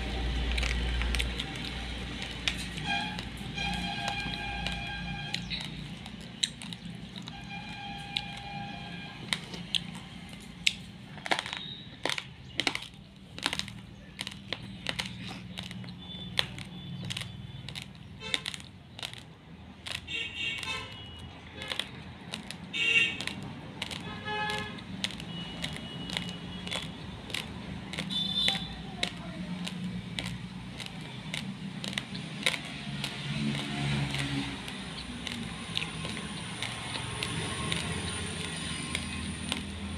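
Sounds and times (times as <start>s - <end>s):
rice grains crunched between teeth: 0.0s - 39.9s.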